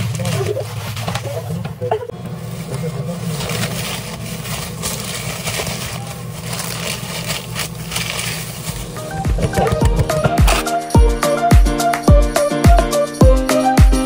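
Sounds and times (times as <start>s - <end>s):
paper rustling and crinkling: 0.0s - 1.7s, 2.3s - 10.6s.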